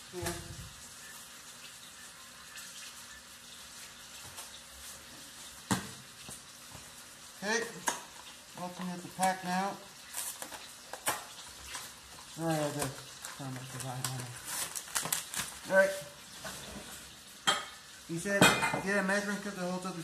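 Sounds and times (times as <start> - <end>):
person speaking: 0.0 - 0.7, 7.4 - 7.9, 8.5 - 9.9, 12.4 - 14.4, 15.6 - 16.2, 18.1 - 20.0
low steady hiss: 0.0 - 20.0.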